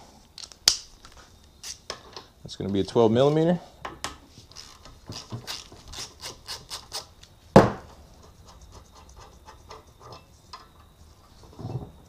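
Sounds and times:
ratchet clicking: 4.5s - 7.1s.

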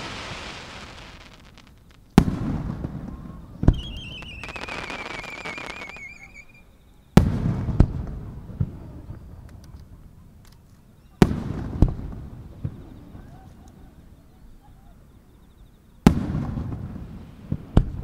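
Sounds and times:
falling warbling firework whistle: 0.0s - 2.0s, 3.1s - 6.7s
firework shells bursting: 0.0s - 2.6s, 3.7s - 6.5s
firework crackles: 0.0s - 6.6s.

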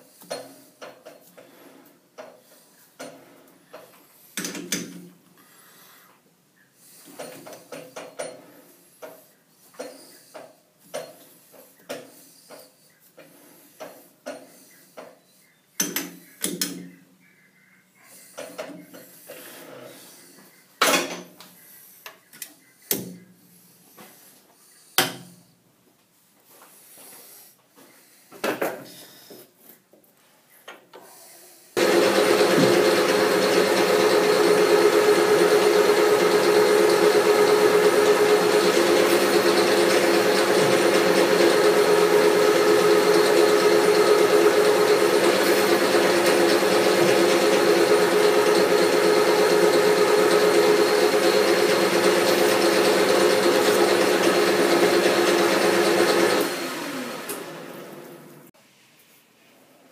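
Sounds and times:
metal lathe running: 31.8s - 58.3s.

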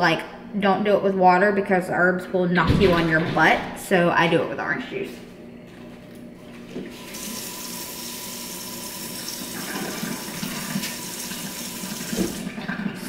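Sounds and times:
faucet running into steel sink: 6.9s - 13.0s.

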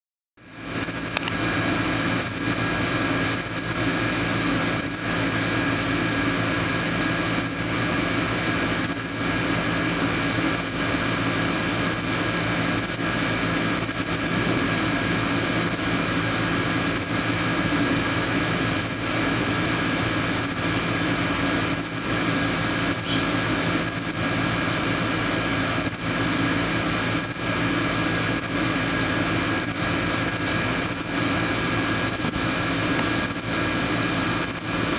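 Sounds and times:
mechanical hum: 0.4s - 34.9s
fledgling bird chirping: 0.8s - 1.5s, 2.2s - 3.9s, 6.8s - 7.8s, 8.8s - 9.3s, 13.8s - 15.9s, 22.9s - 24.3s, 29.6s - 31.2s.

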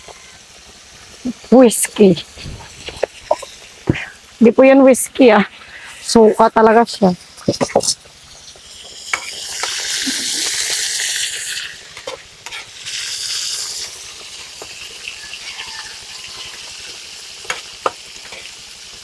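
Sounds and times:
food sizzling in a wok: 0.0s - 19.0s
metal spatula scraping a wok: 11.6s - 12.7s.

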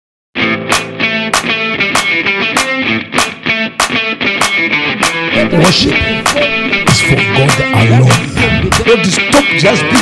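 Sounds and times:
sustained pitched chords: 5.3s - 9.9s.

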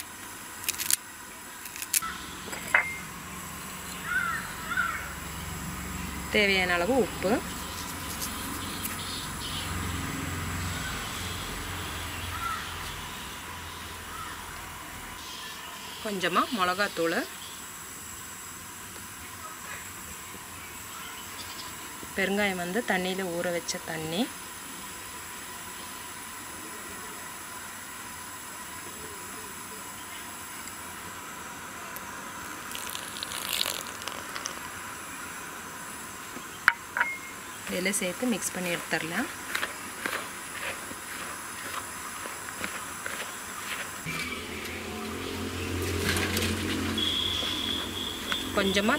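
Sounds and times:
faint steady hiss: 0.0s - 45.5s
water splashing trickle: 32.7s - 34.6s
short bird calls: 47.0s - 48.2s.

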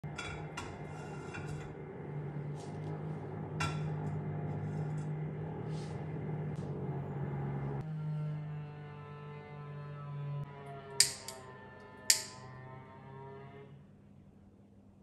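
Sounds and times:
steady low hum: 0.1s - 7.9s.

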